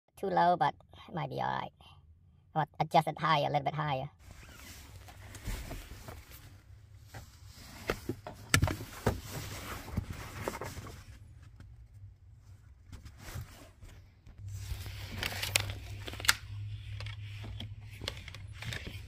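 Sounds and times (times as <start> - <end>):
rustling: 4.2 - 16.4
steady low hum: 4.2 - 19.0.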